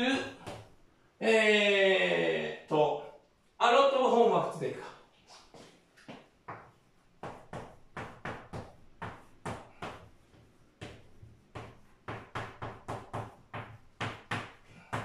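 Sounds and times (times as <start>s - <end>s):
chalk tapping and scratching: 5.3s - 15.0s.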